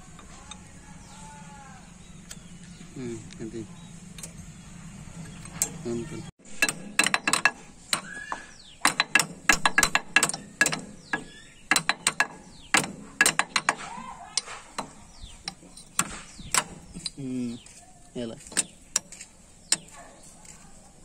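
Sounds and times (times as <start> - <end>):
hammer striking metal: 6.4 - 17.2.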